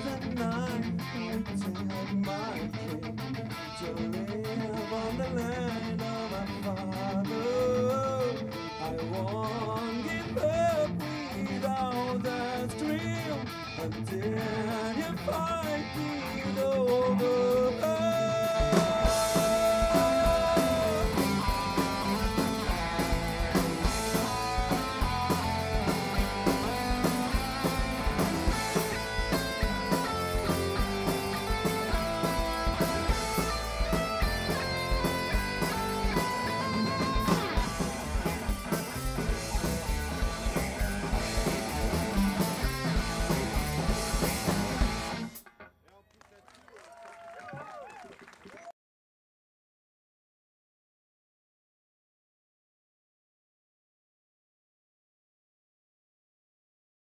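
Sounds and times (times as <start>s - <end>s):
heavy metal band playing live: 0.0s - 45.4s
distorted electric guitars: 0.0s - 45.7s
drum kit beat: 17.8s - 45.5s.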